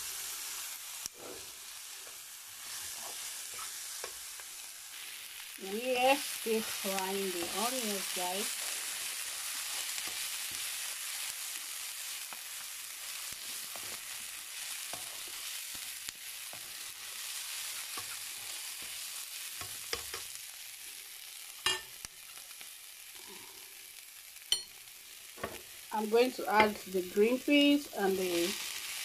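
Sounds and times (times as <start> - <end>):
onions sizzling in oil: 0.0 - 29.0
spatula scraping a pan: 1.2 - 4.3, 13.0 - 20.2.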